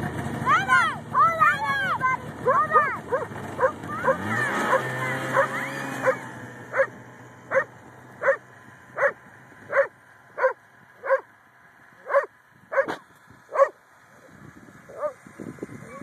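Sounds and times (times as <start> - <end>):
faint snowmobile engine hum: 0.0 - 16.0
dog barking: 2.4 - 6.9, 7.5 - 8.4, 9.0 - 11.3, 12.0 - 13.8, 14.9 - 15.2.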